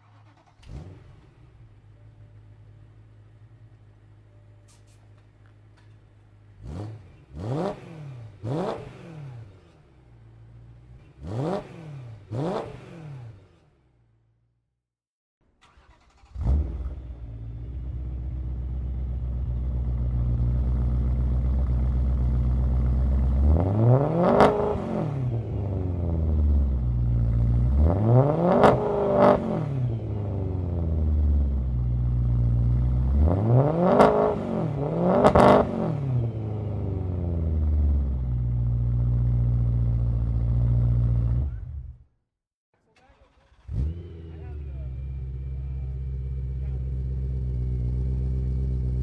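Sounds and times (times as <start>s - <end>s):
car engine idling and revving: 0.0s - 14.4s, 15.6s - 42.1s, 42.8s - 49.0s.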